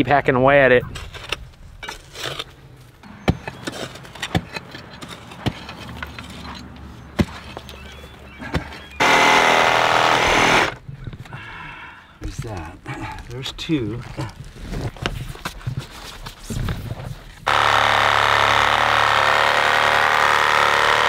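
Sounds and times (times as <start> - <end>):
digging tools striking dirt: 1.0 - 7.8
power saw cutting root: 9.0 - 10.8, 17.5 - 21.0.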